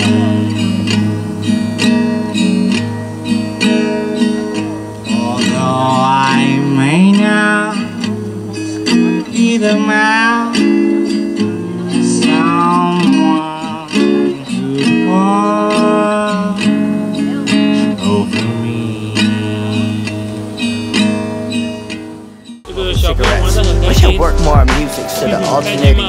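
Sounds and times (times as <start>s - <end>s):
acoustic guitar strummed chords: 0.0s - 26.0s
person singing: 5.1s - 20.1s, 22.7s - 26.0s.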